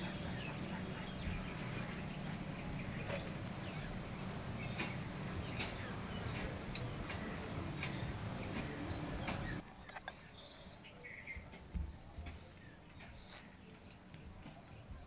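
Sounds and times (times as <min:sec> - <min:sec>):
steady low hum: 0:00.0 - 0:09.6.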